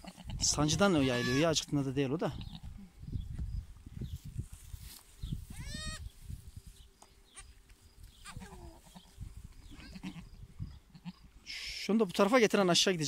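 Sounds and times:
goat bleating: 0.0s - 1.6s, 5.5s - 6.0s, 8.2s - 9.1s, 9.7s - 10.3s, 10.9s - 11.2s.

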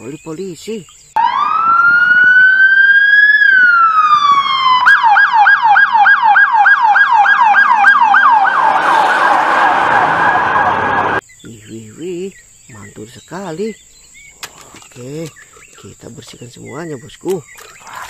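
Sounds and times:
electronic siren wailing and yelping: 1.2s - 11.2s
road noise: 3.6s - 11.2s.

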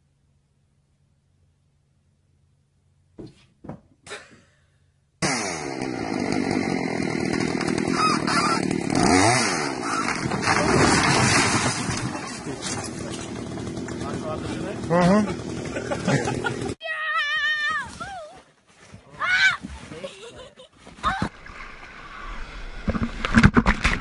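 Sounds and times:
chainsaw cutting at high revs: 5.2s - 16.8s.

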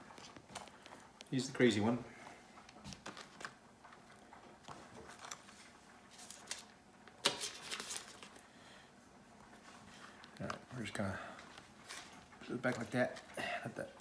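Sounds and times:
paper crinkling: 2.7s - 8.5s, 11.6s - 13.4s.

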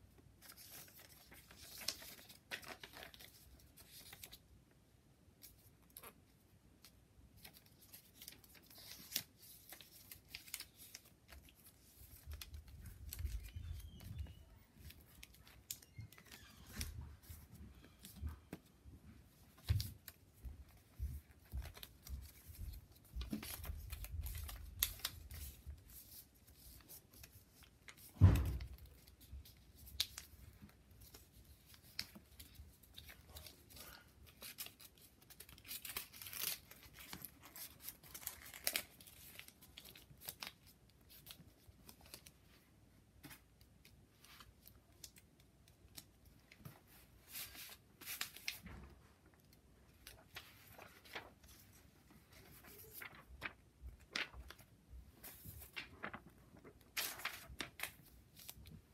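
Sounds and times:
paper crinkling and rustling: 0.2s - 4.6s, 5.4s - 58.9s
sharp thump: 28.2s - 28.7s.

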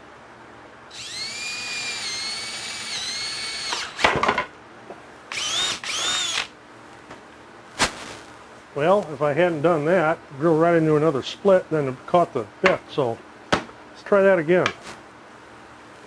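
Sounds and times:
cordless drill boring into wood: 0.9s - 4.2s, 5.3s - 6.5s.

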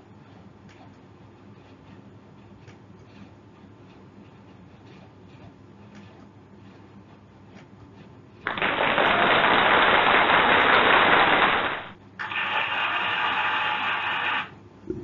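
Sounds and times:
loud hissing: 11.1s - 14.5s.

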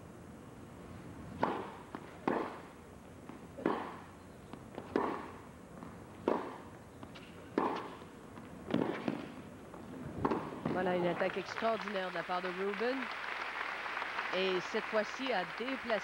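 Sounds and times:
tennis ball hit by racquets: 1.3s - 9.5s, 10.2s - 11.0s.

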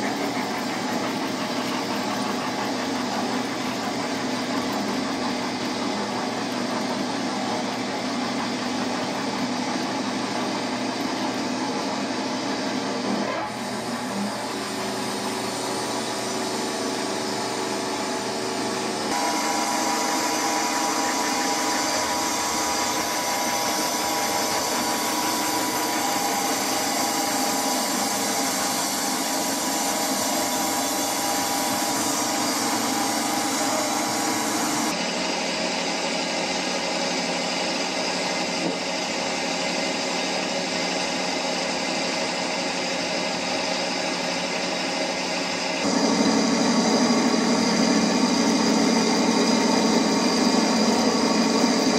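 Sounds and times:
model train motors whirring: 0.0s - 35.0s.

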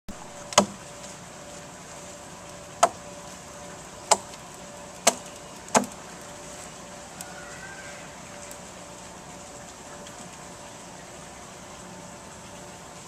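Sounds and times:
hand tool striking wood: 0.5s - 0.8s, 4.1s - 4.3s, 5.0s - 6.0s.

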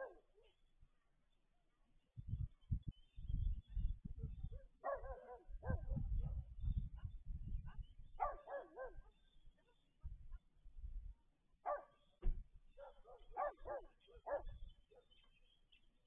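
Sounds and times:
dog barking: 0.0s - 0.3s, 4.5s - 6.5s, 8.2s - 9.1s, 11.6s - 12.0s, 12.8s - 15.1s.

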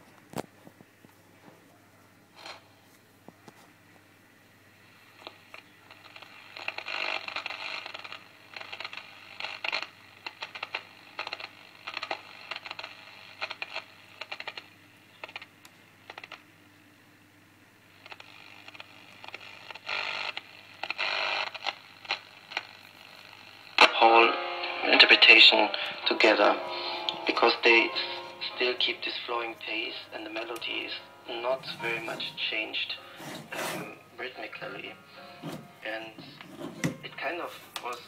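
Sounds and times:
radio crackle: 4.9s - 16.5s, 17.9s - 38.0s
radio tuning across stations: 18.2s - 38.0s.

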